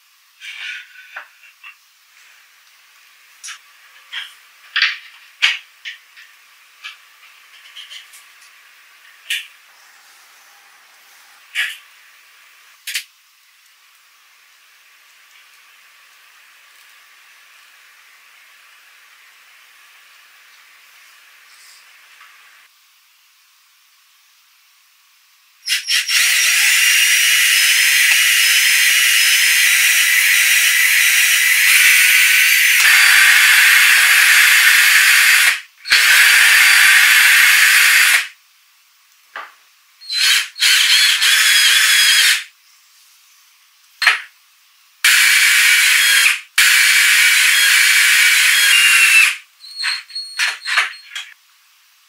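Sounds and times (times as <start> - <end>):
cordless drill running: 26.1 - 38.3, 40.1 - 42.5, 45.1 - 49.4.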